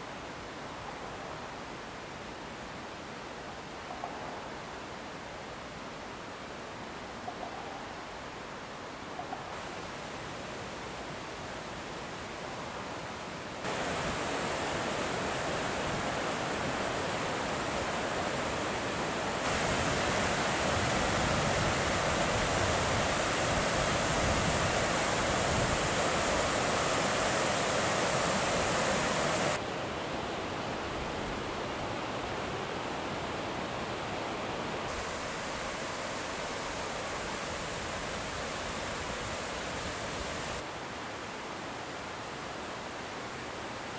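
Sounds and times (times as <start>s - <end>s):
river rushing over boulders: 9.6s - 43.9s.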